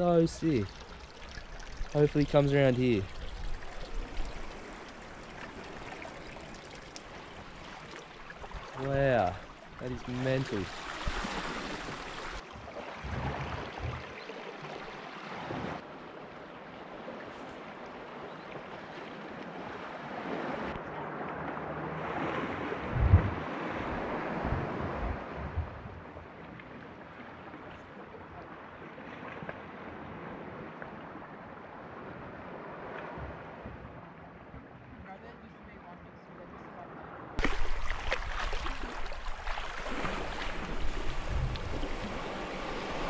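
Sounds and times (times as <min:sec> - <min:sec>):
waves lapping on rocky shore: 0:00.0 - 0:16.0, 0:37.4 - 0:43.0
wind buffeting microphone: 0:22.8 - 0:26.1, 0:39.0 - 0:43.0
low thumps: 0:22.9 - 0:23.4.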